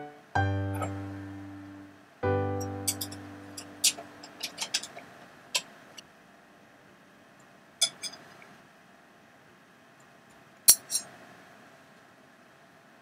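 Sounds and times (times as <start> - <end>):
fork clinking on metal: 2.8 - 5.0, 7.8 - 8.2, 10.7 - 11.1.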